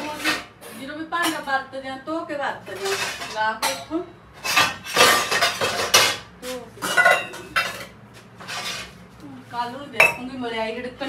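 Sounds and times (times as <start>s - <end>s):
metal utensils clattering: 0.0s - 0.5s, 2.6s - 8.9s.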